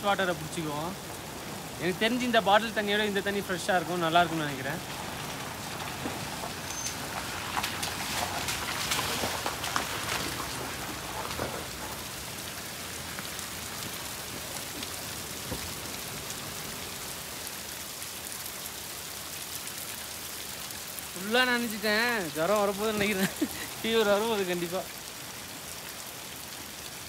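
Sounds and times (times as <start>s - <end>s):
waterfall splashing on rock: 0.0s - 27.0s.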